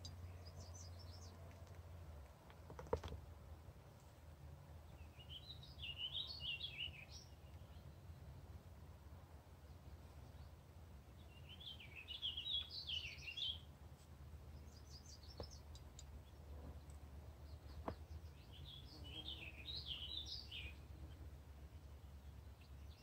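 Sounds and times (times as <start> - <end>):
bird chirps: 5.0 - 8.1, 11.2 - 13.7, 14.5 - 23.0.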